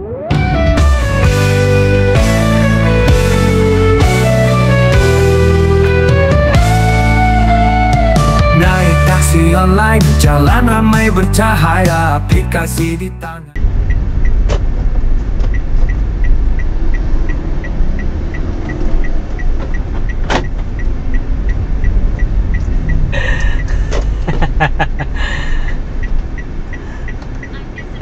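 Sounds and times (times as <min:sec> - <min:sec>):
car engine and road rumble: 0:00.0 - 0:28.0
turn signal ticking: 0:13.6 - 0:28.0.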